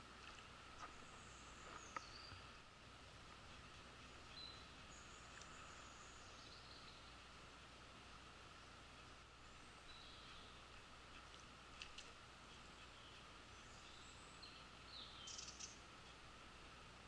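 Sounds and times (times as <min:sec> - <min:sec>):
small clicks: 0:11.2 - 0:12.2
high chirping bird calls: 0:12.6 - 0:15.8.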